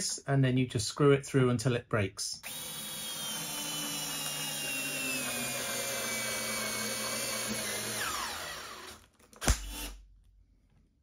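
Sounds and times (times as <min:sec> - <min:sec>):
cordless drill driving screw into wood: 0:02.4 - 0:10.0.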